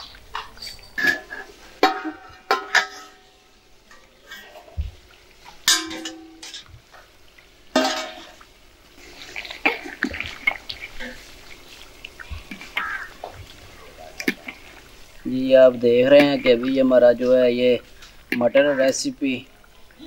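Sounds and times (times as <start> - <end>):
metal lid clanking on pot: 0.4 - 3.2, 5.6 - 6.7, 7.7 - 8.4.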